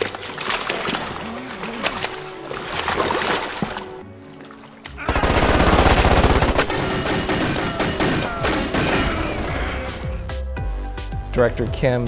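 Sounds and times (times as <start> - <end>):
automatic gunfire: 5.1 - 8.4.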